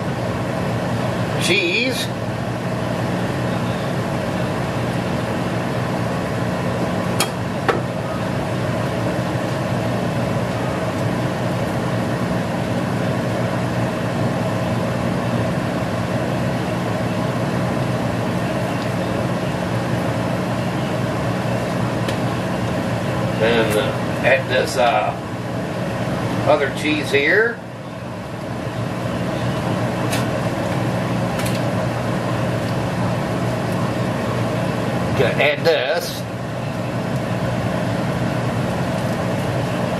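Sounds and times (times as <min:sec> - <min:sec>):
steady mechanical hum: 0:00.0 - 0:39.9.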